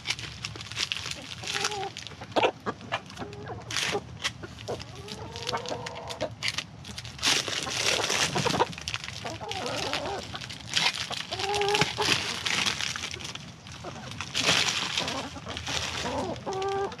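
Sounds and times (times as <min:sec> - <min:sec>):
plastic wrap crinkling: 0:00.0 - 0:02.3, 0:03.0 - 0:17.0
chickens clucking: 0:01.1 - 0:17.0.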